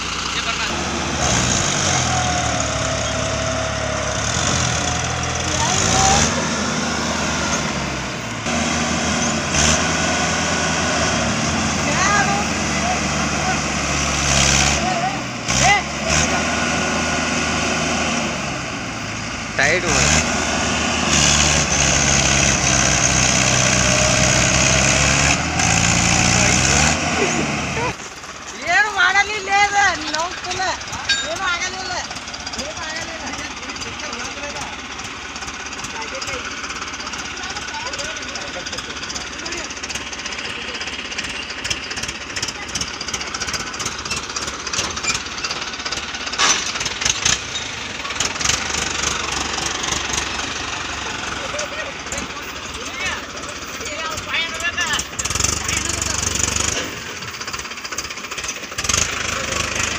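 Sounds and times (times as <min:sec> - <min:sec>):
tractor diesel engines under load: 0:00.0 - 0:59.9
sharp engine knocks: 0:41.2 - 0:50.3.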